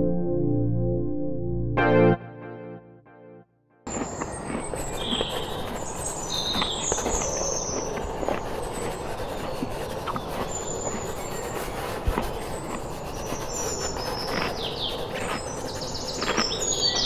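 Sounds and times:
birds chirping: 3.9s - 17.0s.

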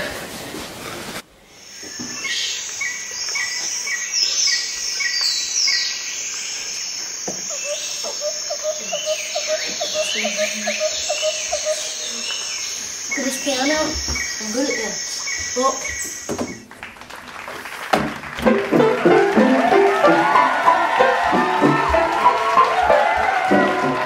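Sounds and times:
insects chirping: 1.5s - 16.6s
birds chirping and whistling: 1.6s - 16.7s.

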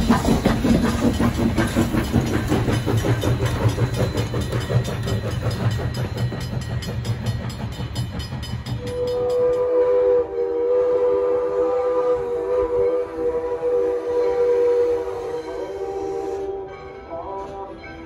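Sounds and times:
steam locomotive exhaust chuffs: 0.0s - 16.5s
steam whistle chime: 3.6s - 17.7s.

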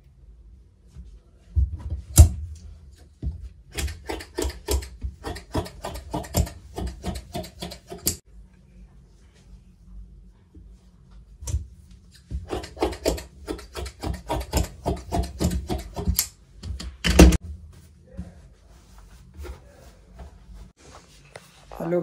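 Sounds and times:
shears snipping fabric: 3.8s - 8.2s, 12.5s - 16.3s.

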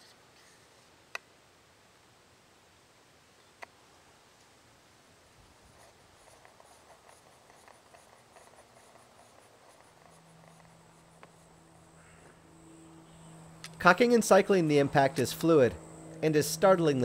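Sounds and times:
faint ticks and rustling: 5.7s - 12.4s.

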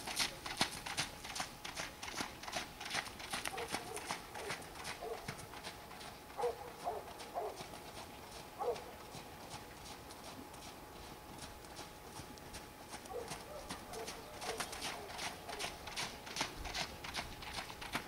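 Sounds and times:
distant hoofbeats on wet sand: 0.0s - 18.0s.

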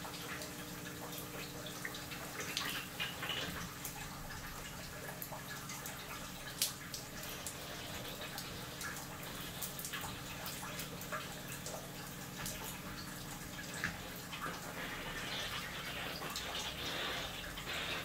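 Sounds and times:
water dripping: 0.0s - 18.0s
steam hissing and spitting: 14.7s - 18.0s.

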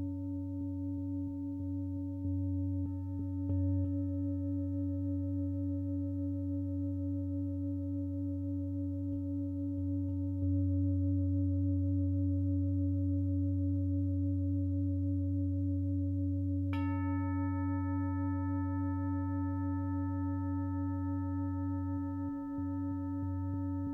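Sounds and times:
singing bowl ringing: 0.0s - 23.9s.

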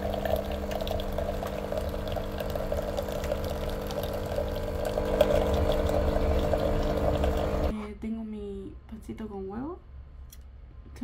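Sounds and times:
coffee machine pump humming: 0.0s - 7.7s
coffee pouring into mug: 0.0s - 7.7s.

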